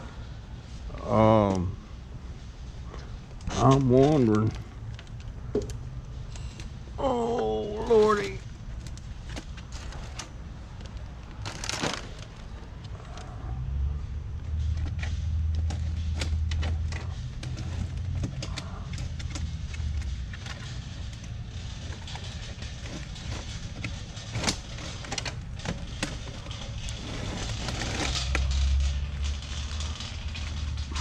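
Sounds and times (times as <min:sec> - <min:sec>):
plastic pots clattering: 0:14.8 - 0:31.0.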